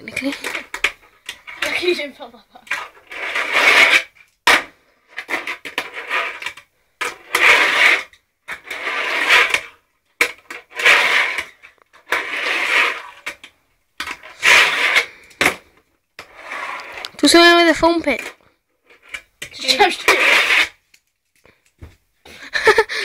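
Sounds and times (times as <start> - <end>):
fingerboard wheels rolling on ramp: 2.7 - 13.4, 14.0 - 15.1, 16.2 - 17.2, 20.0 - 20.8.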